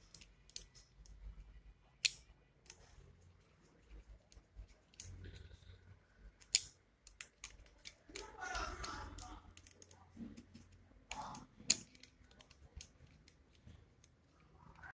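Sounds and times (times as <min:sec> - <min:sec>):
screwdriver clicking on metal screws: 0:11.1 - 0:13.4.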